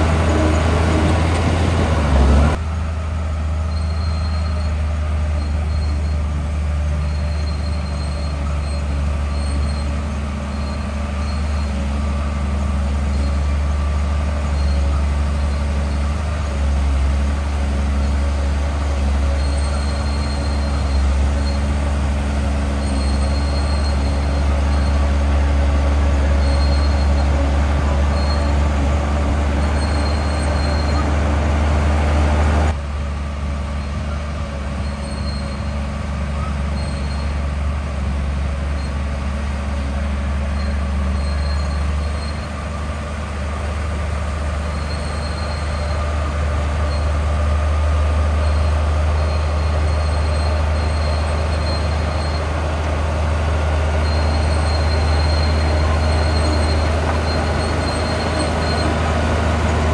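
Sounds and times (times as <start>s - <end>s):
bulldozer diesel engine: 0.0s - 59.9s
high-pitched squeaks: 18.0s - 31.2s, 44.6s - 59.9s.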